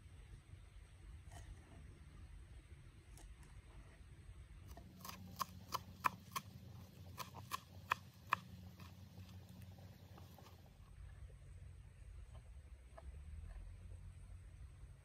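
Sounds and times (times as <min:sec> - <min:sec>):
knife chopping on wooden board: 0:04.7 - 0:09.4.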